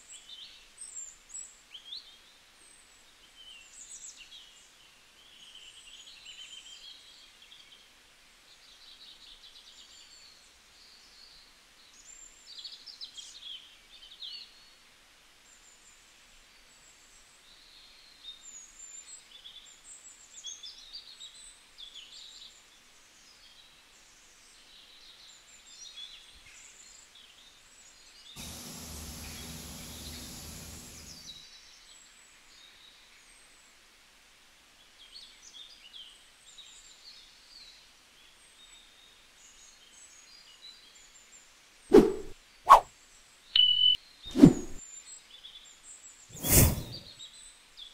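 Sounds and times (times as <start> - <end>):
hiss: 28.4 - 31.4, 46.4 - 47.0
small birds chirping: 28.4 - 31.4, 43.6 - 44.8.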